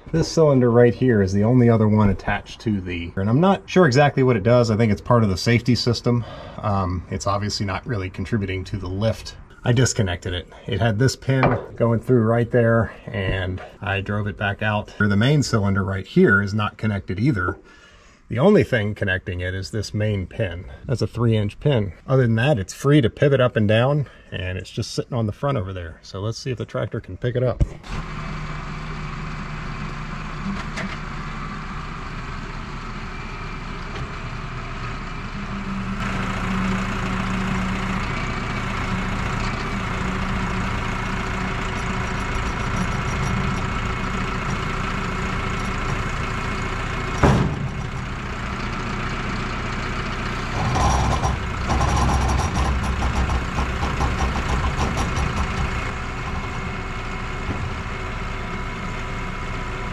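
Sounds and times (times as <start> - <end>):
tractor diesel engine under load: 0.0 - 24.5, 27.7 - 59.9
rumbling and knocking: 11.3 - 12.3, 13.2 - 13.8, 40.7 - 48.9, 50.5 - 57.9
sharp metal clank: 11.4 - 11.8.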